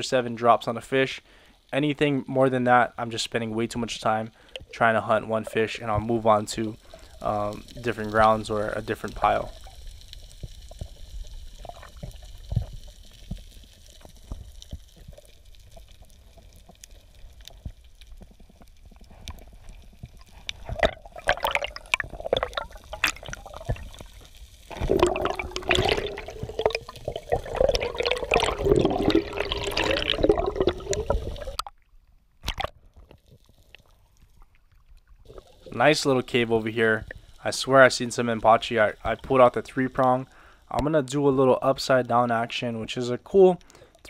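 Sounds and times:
gurgling water: 2.7 - 40.8
crackling clicks: 3.0 - 42.6
underwater rush of water: 3.1 - 31.7, 35.2 - 40.1.

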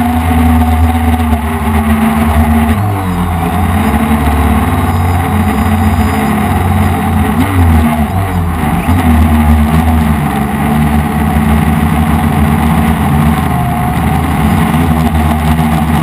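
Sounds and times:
quadcopter motors buzzing: 0.0 - 9.0.

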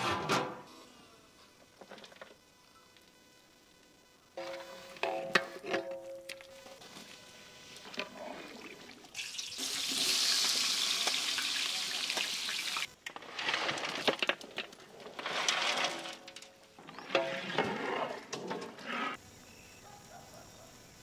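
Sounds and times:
meat crackling and popping in pot: 9.1 - 13.2
onions sizzling in hot oil: 9.2 - 12.9.

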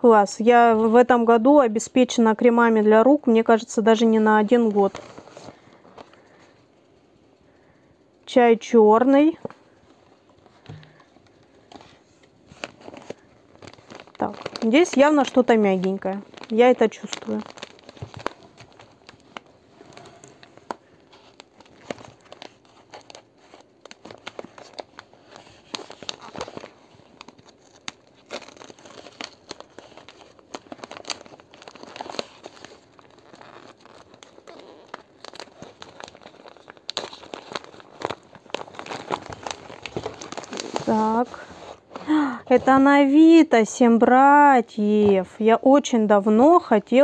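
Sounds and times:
package wrapping crinkling and tearing: 10.4 - 42.9.

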